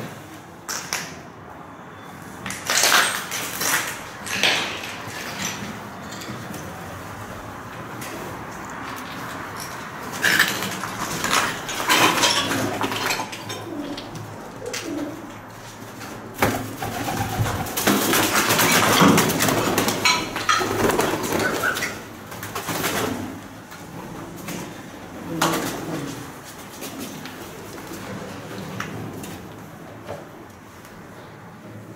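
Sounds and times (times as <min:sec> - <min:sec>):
pigeons cooing: 0:11.9 - 0:15.6, 0:20.0 - 0:22.2.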